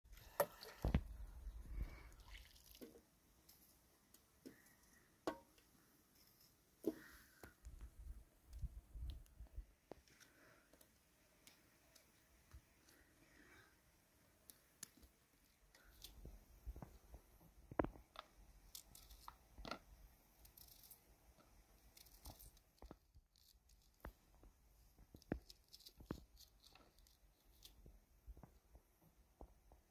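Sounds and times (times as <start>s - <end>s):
water pouring and splashing: 0.1s - 3.1s.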